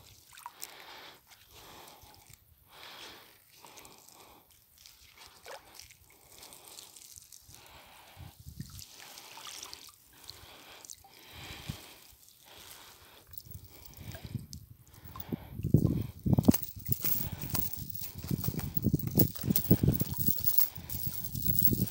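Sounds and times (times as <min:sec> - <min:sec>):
water dripping off a net: 0:00.0 - 0:02.4, 0:03.4 - 0:15.9.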